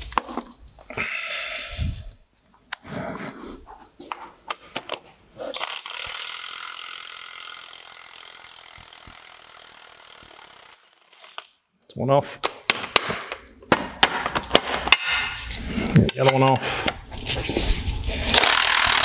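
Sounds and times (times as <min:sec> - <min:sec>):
impact wrench hammering: 0:12.4 - 0:15.4, 0:18.3 - 0:19.0.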